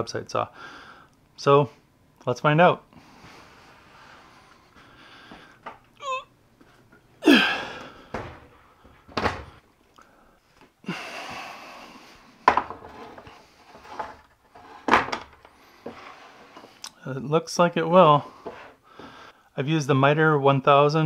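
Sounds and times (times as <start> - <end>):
wooden clunks and knocks: 8.1 - 9.6, 12.4 - 16.0
scraping slide: 12.9 - 15.0, 15.7 - 16.8.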